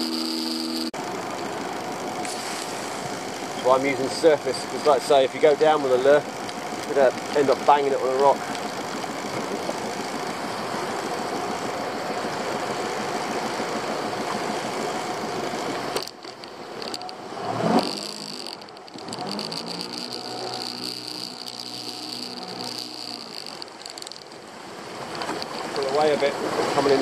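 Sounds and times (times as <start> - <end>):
thin high whine: 0.0 - 0.9, 19.4 - 23.6
boat engine running: 0.0 - 27.0.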